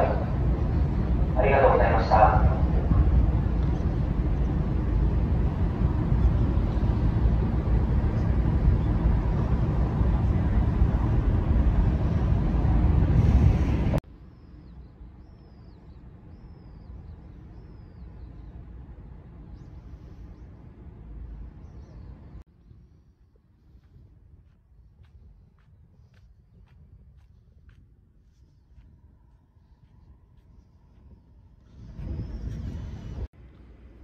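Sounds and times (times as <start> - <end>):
loud rushing rumble: 0.0 - 14.0
bird chirping: 14.2 - 18.7, 21.6 - 23.0.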